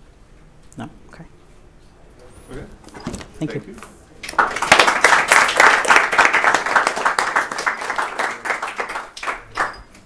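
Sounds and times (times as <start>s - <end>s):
audience applauding: 4.2s - 10.0s.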